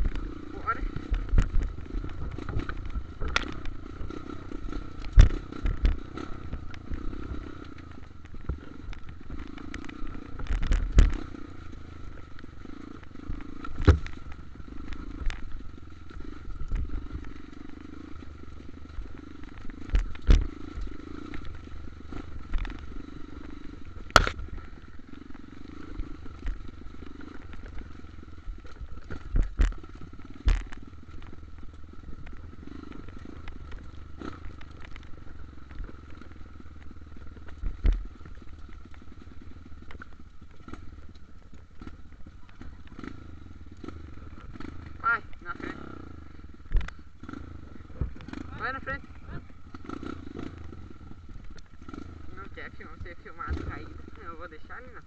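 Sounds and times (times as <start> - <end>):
dirt bike engine running: 0.0 - 55.0
bike knocking over bumps: 8.1 - 43.2.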